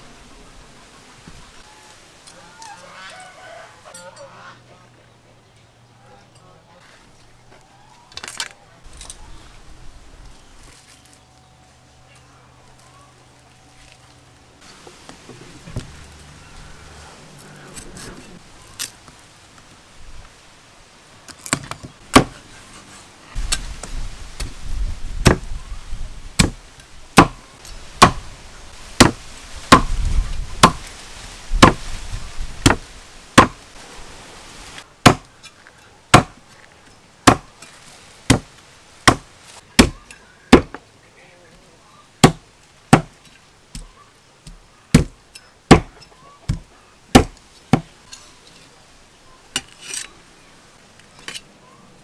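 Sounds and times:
cleaver chopping on wooden block: 21.5s - 22.4s, 25.2s - 25.5s, 26.4s - 26.6s, 27.2s - 27.4s, 28.0s - 28.2s, 29.0s - 29.9s, 30.6s - 30.8s, 32.6s - 32.8s, 35.0s - 35.3s, 36.1s - 36.4s, 37.2s - 37.5s, 39.1s - 40.8s, 42.2s - 43.2s, 44.5s - 45.9s, 46.5s - 47.9s.

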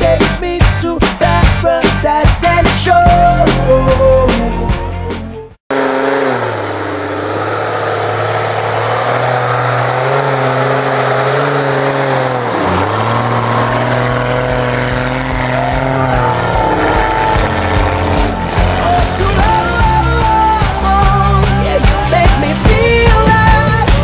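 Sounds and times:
car engine running hard: 5.7s - 24.0s.

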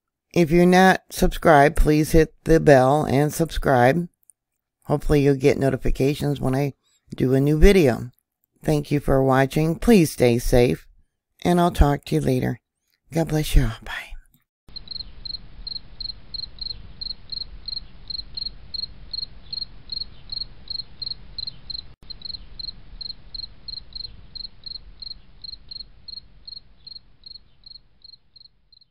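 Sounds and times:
cricket-like chirping: 14.7s - 28.9s.

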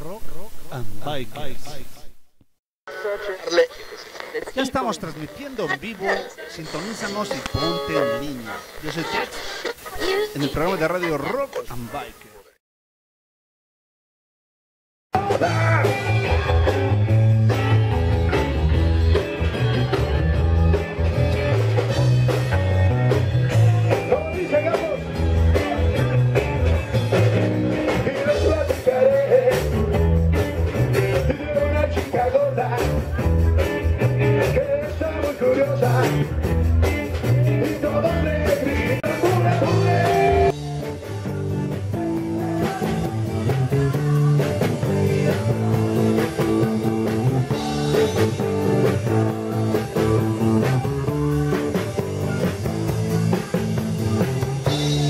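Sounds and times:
rock music with singing: 15.1s - 55.0s.

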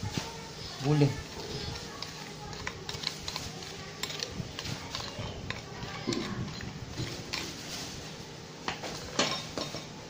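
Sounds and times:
bowl and utensils clinking: 1.8s - 7.6s, 8.8s - 10.0s.

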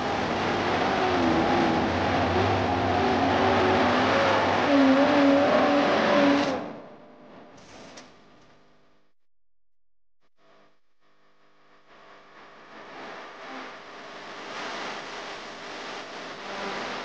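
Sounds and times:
buggy engine revving hard: 0.0s - 6.7s.

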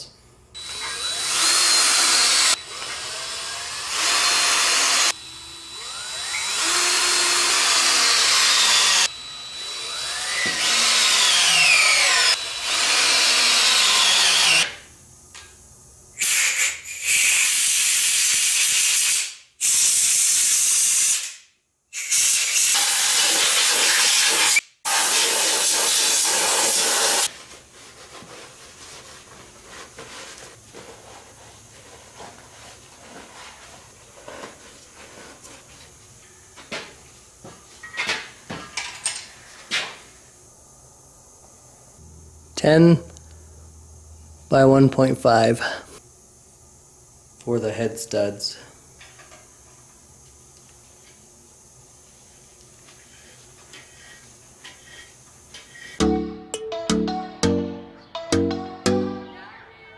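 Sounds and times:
compressed-air blow gun hissing: 16.2s - 21.3s, 22.0s - 27.3s.

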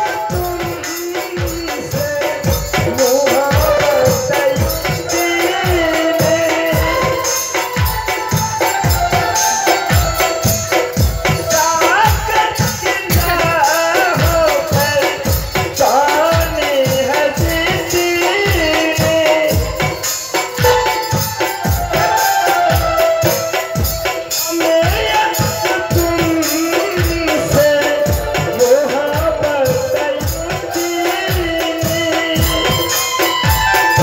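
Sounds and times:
drum beat: 0.0s - 34.0s
shaker-like percussion rattling: 0.0s - 34.0s
wavering melody: 19.6s - 24.3s.

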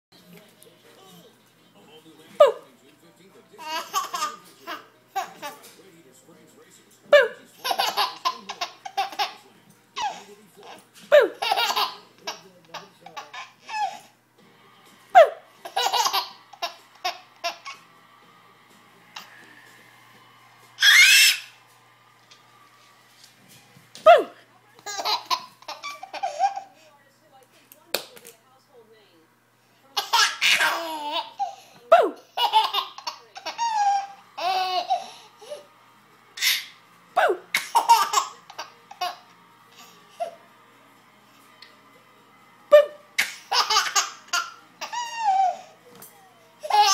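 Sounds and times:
baby laughing: 3.6s - 5.7s, 7.1s - 9.4s, 10.0s - 14.1s, 15.2s - 17.8s, 20.8s - 21.6s, 24.1s - 26.9s, 30.0s - 35.7s, 36.4s - 40.4s, 42.7s - 45.7s, 46.6s - 46.9s
baby laughing and squealing: 20.8s - 21.6s, 30.0s - 35.2s, 43.2s - 45.7s, 46.6s - 46.9s.

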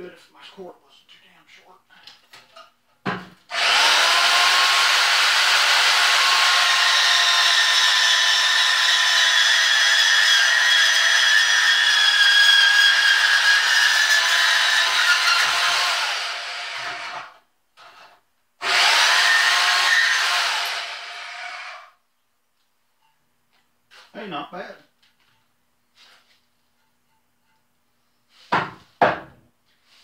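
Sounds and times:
bandsaw cutting metal: 3.5s - 18.0s, 18.6s - 21.9s.

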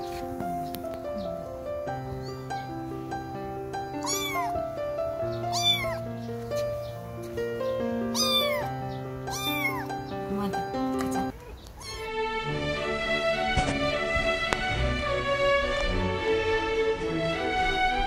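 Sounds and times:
background music: 0.0s - 11.3s, 12.0s - 18.0s
kitten meowing: 1.9s - 2.8s, 3.8s - 6.1s, 8.1s - 10.1s, 11.1s - 12.2s.

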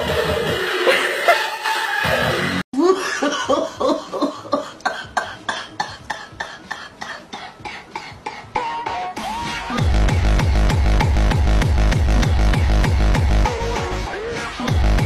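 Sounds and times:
electronic dance beat: 6.0s - 15.0s.

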